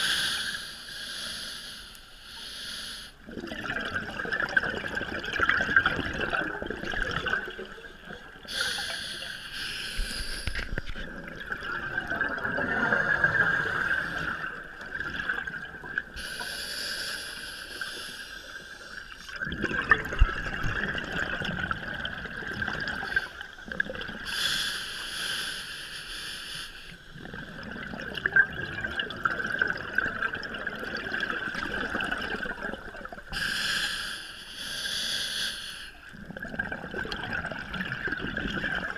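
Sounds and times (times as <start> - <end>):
steady underwater hiss: 0.0 - 3.3, 8.0 - 11.0, 12.6 - 19.4, 22.1 - 27.9, 31.8 - 36.5
exhaled bubbles underwater: 3.2 - 8.9, 10.5 - 16.4, 18.8 - 24.4, 27.1 - 33.4, 36.1 - 38.9.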